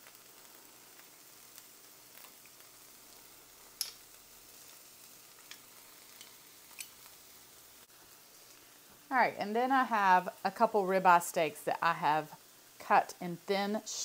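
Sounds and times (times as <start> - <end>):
vegetables sizzling in oil: 0.0 - 14.0.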